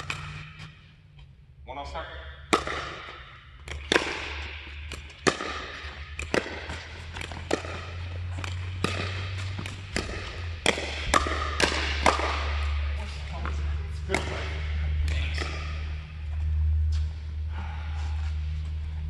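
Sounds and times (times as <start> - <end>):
steady low hum: 0.0 - 19.0
paddles striking a ball: 2.4 - 16.1.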